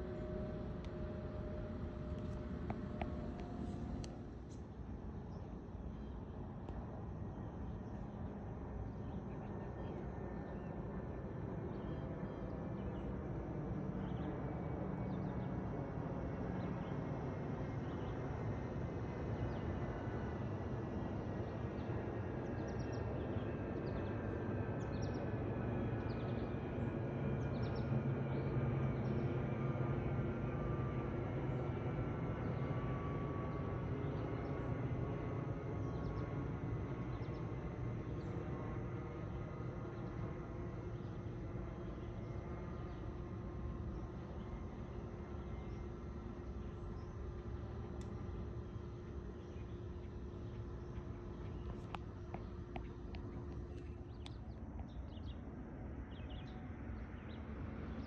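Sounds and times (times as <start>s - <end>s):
faint whine falling in pitch: 0.0s - 8.0s
jet engine rumble: 0.0s - 9.3s.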